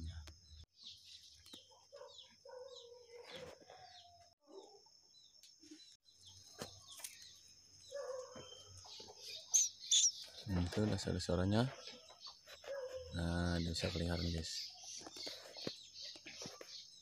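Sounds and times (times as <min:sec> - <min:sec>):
lower bird calls: 0:07.9 - 0:10.5
nestlings cheeping: 0:08.3 - 0:10.4.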